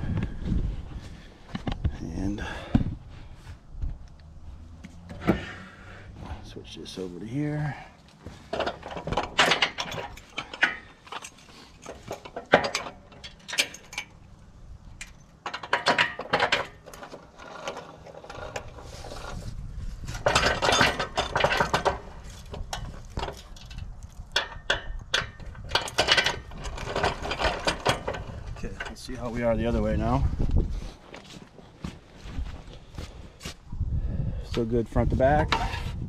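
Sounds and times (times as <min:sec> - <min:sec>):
low rumble: 0:00.0 - 0:06.8
hand-cranked jack clinking and clicking: 0:08.5 - 0:14.2, 0:20.2 - 0:29.1.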